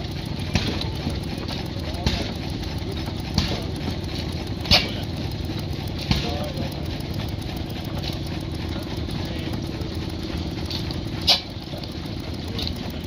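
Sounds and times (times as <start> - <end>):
stationary engine chugging: 0.0 - 13.0.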